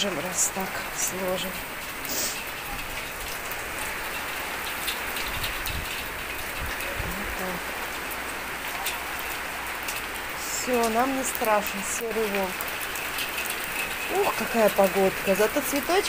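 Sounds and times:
heavy rain on tiled balcony: 0.0s - 16.0s.

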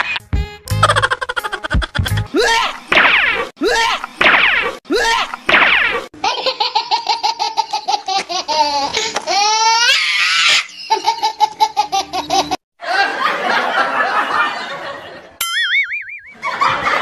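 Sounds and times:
high-pitched laughter: 0.8s - 2.8s, 6.2s - 13.2s.

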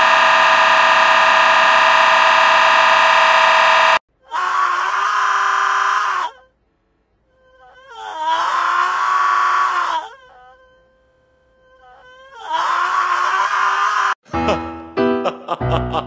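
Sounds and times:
stretched yell wail: 4.3s - 6.4s, 8.0s - 10.1s, 12.4s - 14.2s.

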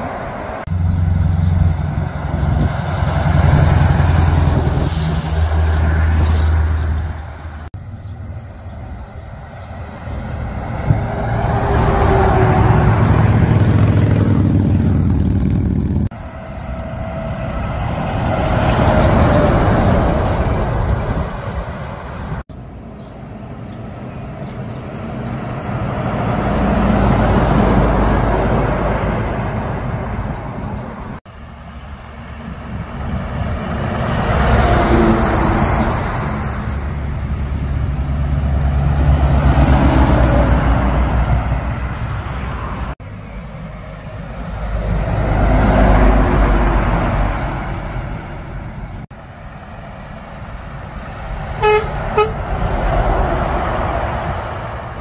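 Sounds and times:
heavy trucks passing: 0.0s - 55.0s
truck horn toots: 51.6s - 52.6s.

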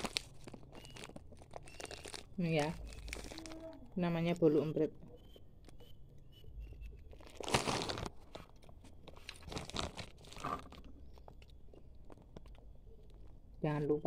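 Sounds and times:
cookie crunching: 0.0s - 3.9s, 6.7s - 13.5s.

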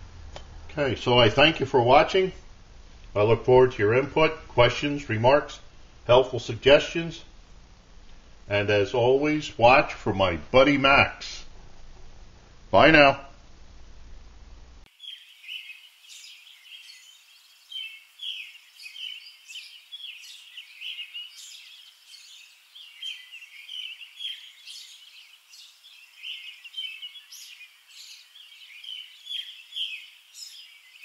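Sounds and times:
birds chirping: 14.9s - 31.0s.

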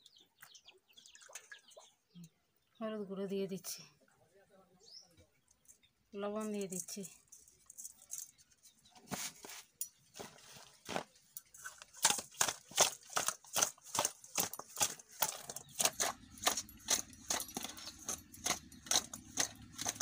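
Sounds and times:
wet clacks of fish in metal bowl: 11.6s - 20.0s.

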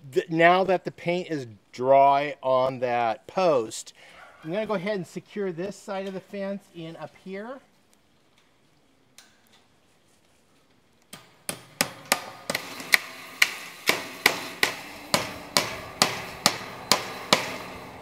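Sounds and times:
hammer blows ringing: 11.5s - 18.0s.

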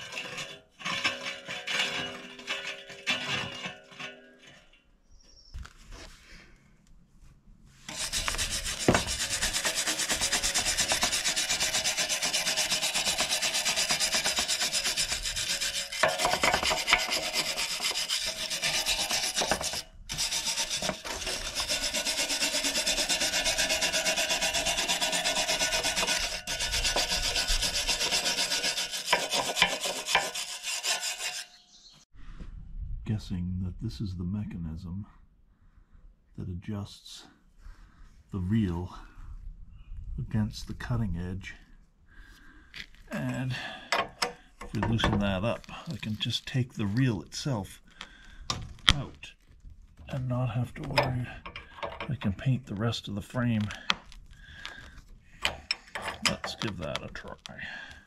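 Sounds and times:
sanding scraping on steel: 7.8s - 31.7s.

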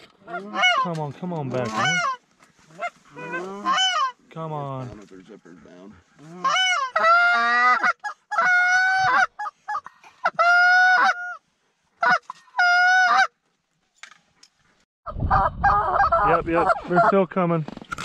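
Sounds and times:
goose call clucks: 0.2s - 4.2s, 6.2s - 11.4s, 12.0s - 13.3s
goose call honks: 1.6s - 4.2s.

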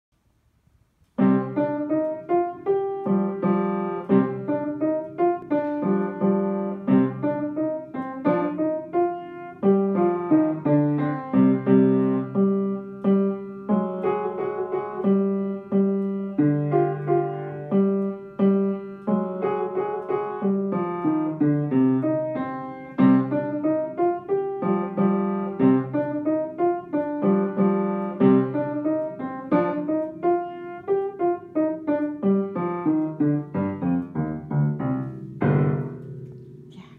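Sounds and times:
upright piano piece: 1.0s - 36.9s.

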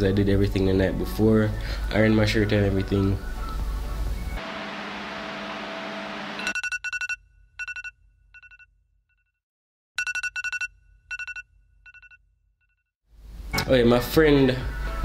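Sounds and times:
phone alarm beeps: 10.0s - 12.2s.

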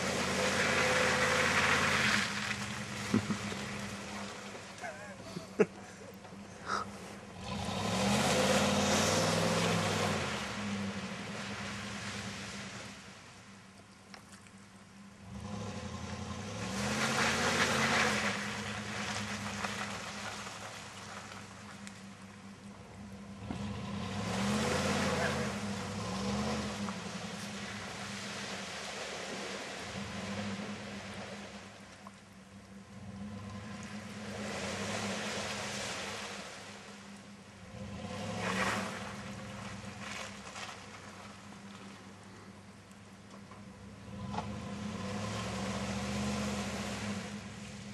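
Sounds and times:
truck engine revving: 0.0s - 12.6s, 15.2s - 20.7s, 22.8s - 31.6s, 37.6s - 40.6s, 44.0s - 47.9s
tyres churning in mud: 0.0s - 13.4s, 15.2s - 47.9s.

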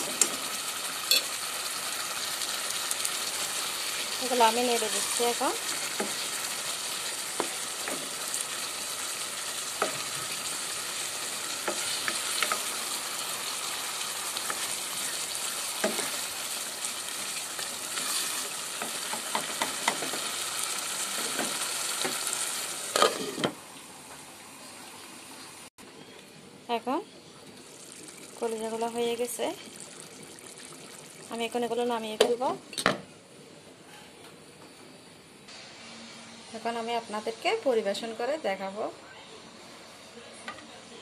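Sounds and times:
curry sizzling in a pot: 0.0s - 25.7s, 27.1s - 32.5s
spatula scraping a pot: 17.9s - 18.6s, 23.0s - 23.5s.

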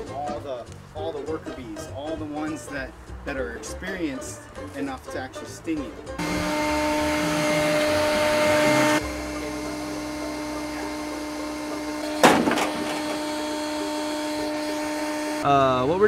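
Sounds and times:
vacuum motor whine: 6.2s - 15.5s
short sharp bang: 12.0s - 13.4s.

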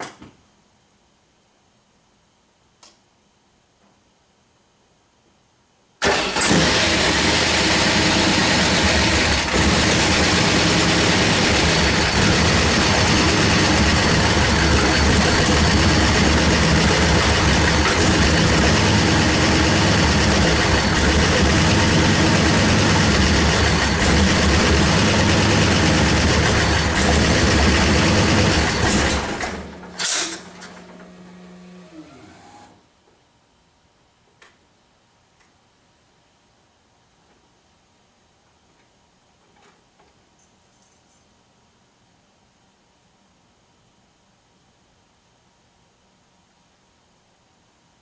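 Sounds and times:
car engine starting and running: 6.0s - 32.8s.

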